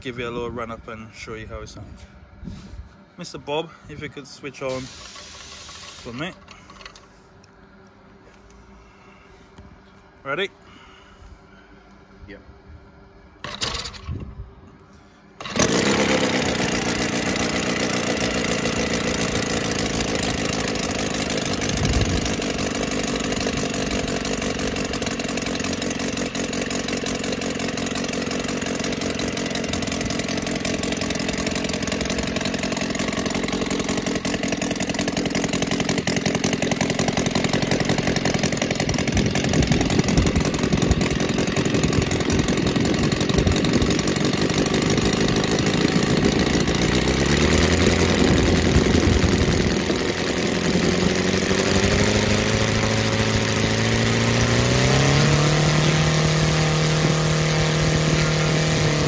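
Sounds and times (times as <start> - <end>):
model aircraft engine running: 15.4 - 59.0.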